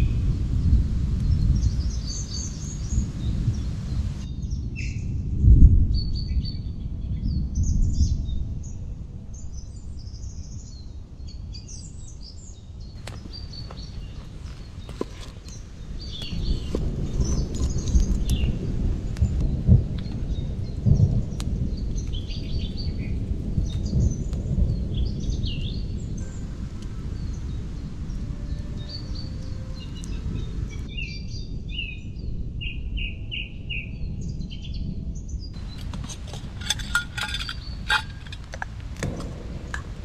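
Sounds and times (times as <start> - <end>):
birds chirping: 12.9 - 18.5, 35.6 - 39.5.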